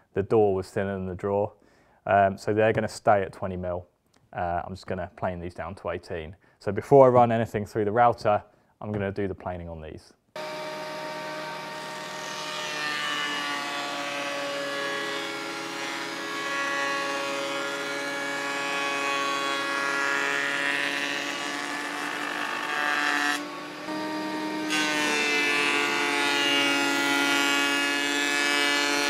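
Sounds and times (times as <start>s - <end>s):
electric planer whining: 10.4s - 29.0s.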